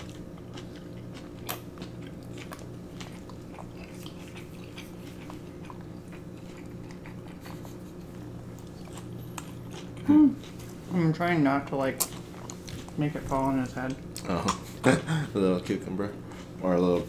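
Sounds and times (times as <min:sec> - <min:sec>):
chewing mouth clicks and smacks: 0:00.0 - 0:10.7
steady low hum: 0:00.0 - 0:17.0.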